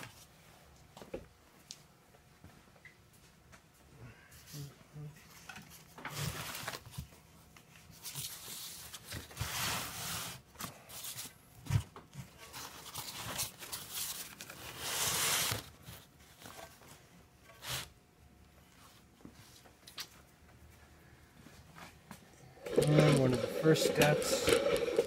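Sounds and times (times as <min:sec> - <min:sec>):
scraping and rustling on a bench: 0:07.8 - 0:11.4.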